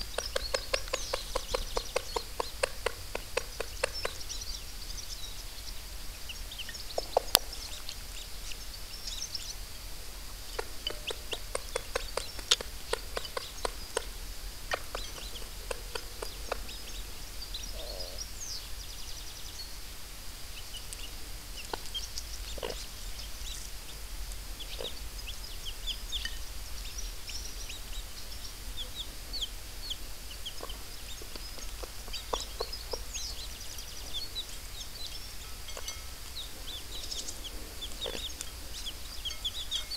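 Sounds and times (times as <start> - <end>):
hen clucking: 0.0 - 4.5, 10.4 - 18.2, 21.6 - 22.9, 29.8 - 34.5, 36.7 - 39.9
chicks peeping: 0.0 - 19.8, 20.5 - 39.9.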